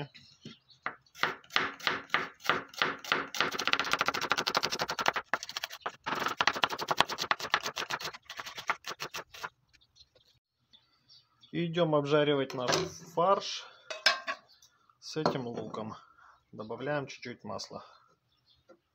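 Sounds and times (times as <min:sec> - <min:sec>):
knife chopping on wooden board: 0:01.2 - 0:03.9.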